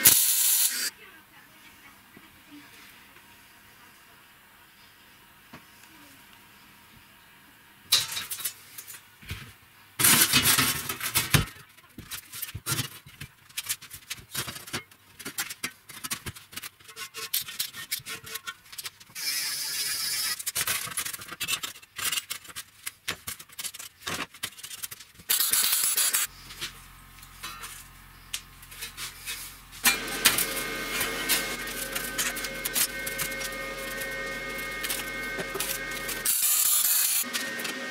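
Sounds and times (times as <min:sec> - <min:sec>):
angle grinder grinding steel: 0:00.0 - 0:00.9, 0:28.7 - 0:37.9.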